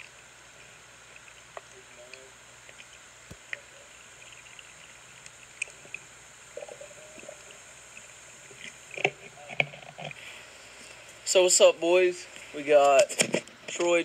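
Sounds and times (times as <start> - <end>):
small underwater clicks: 0.0 - 10.2
underwater hiss: 10.0 - 12.6.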